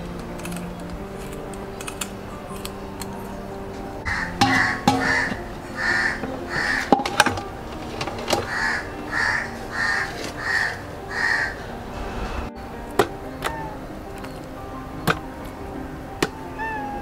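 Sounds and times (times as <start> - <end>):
crow cawing: 4.0 - 6.9, 8.4 - 11.7
sharp knocks: 4.1 - 5.4.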